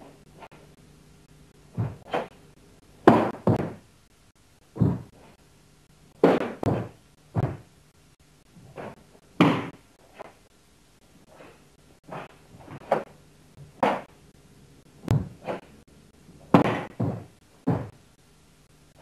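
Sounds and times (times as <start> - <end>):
bare feet stamping on wooden floor: 1.7 - 2.3, 3.0 - 3.8, 4.7 - 5.2, 6.2 - 7.7, 8.7 - 9.8, 15.0 - 15.7, 16.5 - 18.0.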